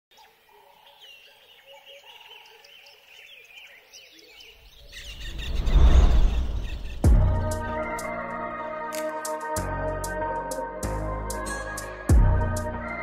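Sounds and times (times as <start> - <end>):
small birds chirping: 0.1 - 7.8
rising whoosh: 4.8 - 8.2.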